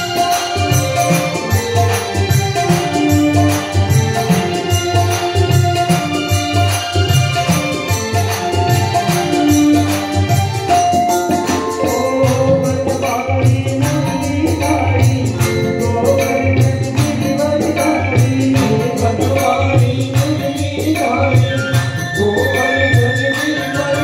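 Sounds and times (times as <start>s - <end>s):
tabla and percussion beat: 0.0s - 24.0s
man singing into microphone: 10.7s - 24.0s.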